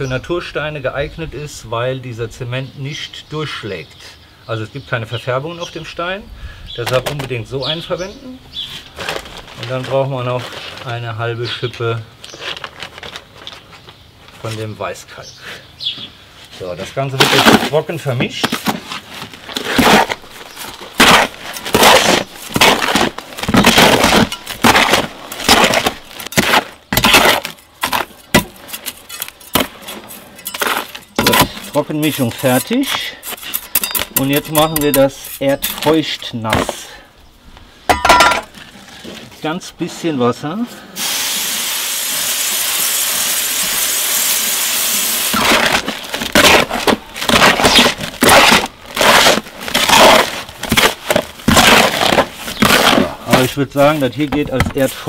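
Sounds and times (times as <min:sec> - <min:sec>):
trowel scraping mortar mix: 0:16.6 - 0:36.8, 0:45.0 - 0:55.0
water spraying onto mortar: 0:41.0 - 0:45.7.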